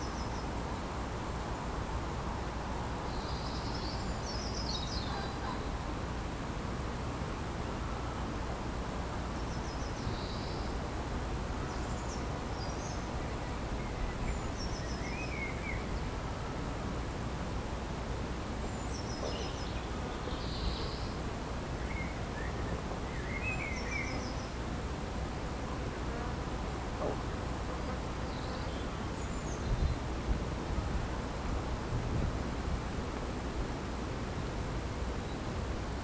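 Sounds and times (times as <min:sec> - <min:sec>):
small birds singing: 0:03.1 - 0:05.8, 0:09.4 - 0:10.8, 0:11.6 - 0:16.2, 0:18.6 - 0:21.2, 0:21.8 - 0:24.6, 0:27.8 - 0:30.2.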